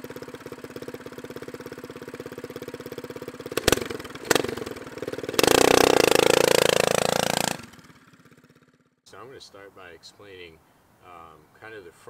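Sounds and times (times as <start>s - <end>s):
small engine idling and revving: 0.0s - 9.0s.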